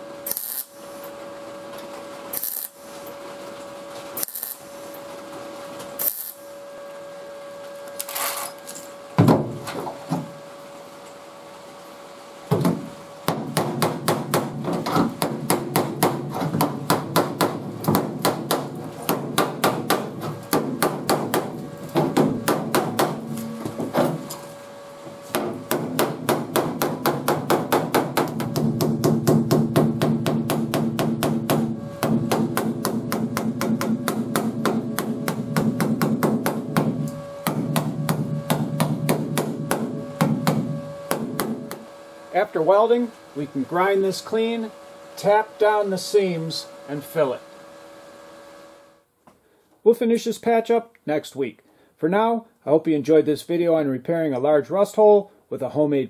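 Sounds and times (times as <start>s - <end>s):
hammer striking sheet metal: 12.6s - 24.3s, 25.3s - 41.9s.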